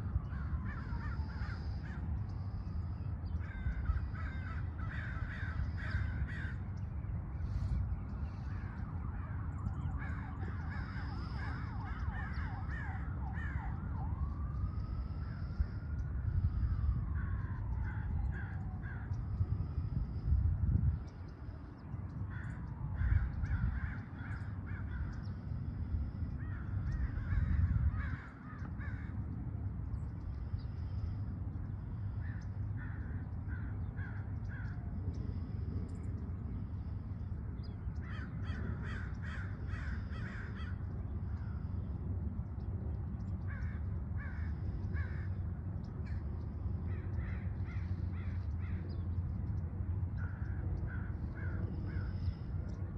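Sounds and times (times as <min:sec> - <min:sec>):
crows cawing: 0:00.0 - 0:41.9, 0:43.2 - 0:49.3, 0:50.0 - 0:52.8
steady low rumble: 0:00.0 - 0:52.9.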